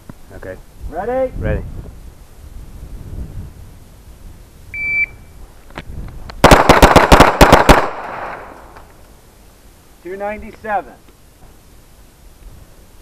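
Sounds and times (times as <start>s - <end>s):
shot timer beep: 4.8s - 5.2s
gunshot echo: 6.4s - 8.6s
pistol shots: 6.4s - 8.6s.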